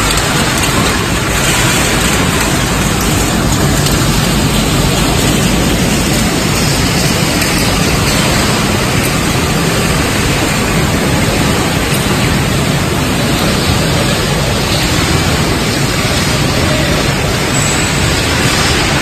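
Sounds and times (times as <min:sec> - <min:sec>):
loud industrial din: 0:00.0 - 0:19.0.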